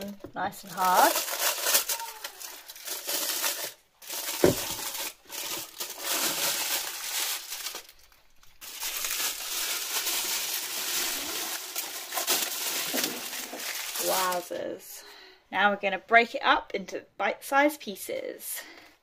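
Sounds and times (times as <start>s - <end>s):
foil crinkling and tearing: 0.0s - 14.6s.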